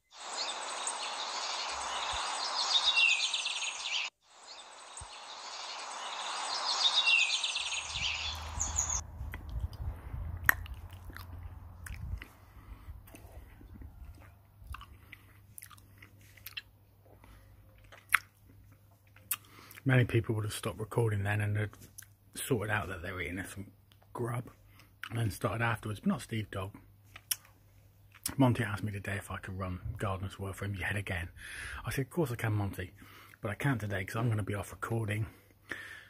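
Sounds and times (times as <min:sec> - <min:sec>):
lip smacks: 0:09.2 - 0:16.7, 0:17.8 - 0:19.8, 0:27.1 - 0:27.5
man chewing food: 0:09.2 - 0:19.8.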